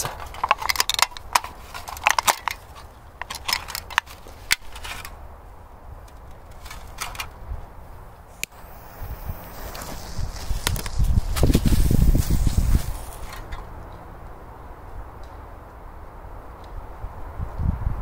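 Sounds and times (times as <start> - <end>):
thin drinks can crinkling: 0.0 - 4.8, 8.5 - 13.6.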